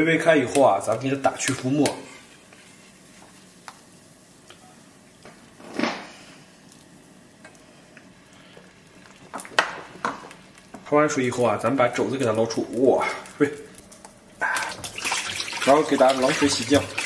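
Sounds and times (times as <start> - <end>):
water bubbling in a pot: 13.1 - 17.0.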